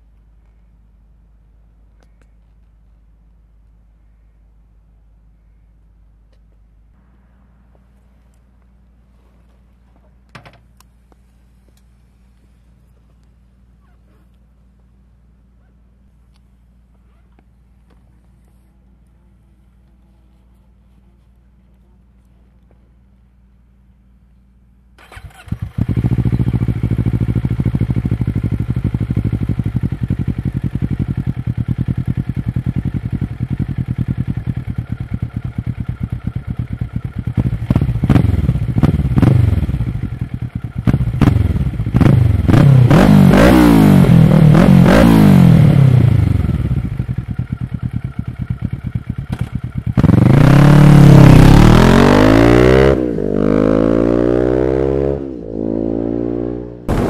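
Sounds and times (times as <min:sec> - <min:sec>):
motorcycle engine revving: 0:25.0 - 0:57.0.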